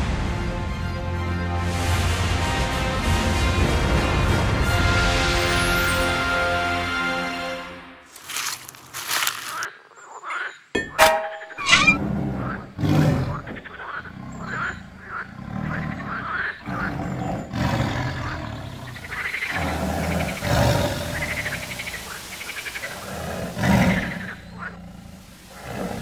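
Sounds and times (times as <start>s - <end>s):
sharp ringing impact: 10.8s - 12.0s
tiger growling: 11.6s - 26.0s.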